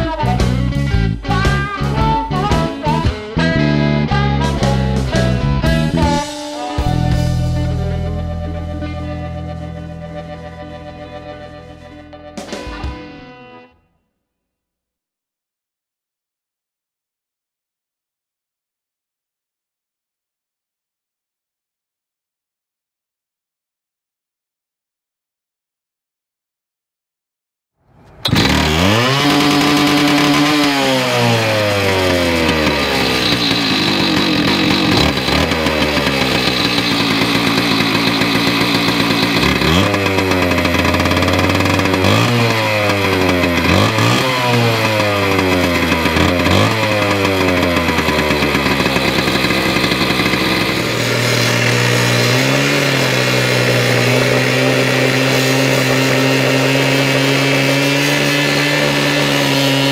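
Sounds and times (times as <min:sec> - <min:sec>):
abrasive wheel grinding steel: 0:27.9 - 0:59.9
cut-off saw engine revving: 0:27.9 - 0:59.9.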